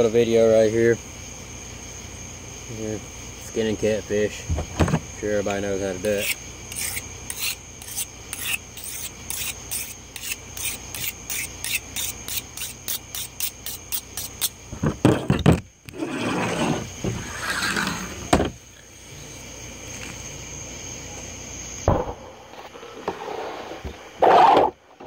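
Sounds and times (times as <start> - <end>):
knife sharpening on whetstone: 6.0 - 14.6
loud knocks: 21.9 - 22.2.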